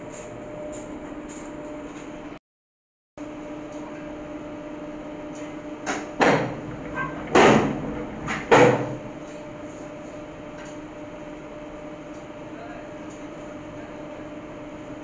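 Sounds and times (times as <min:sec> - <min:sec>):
machine hum: 0:03.2 - 0:15.0
metal clattering clunks: 0:05.9 - 0:09.4.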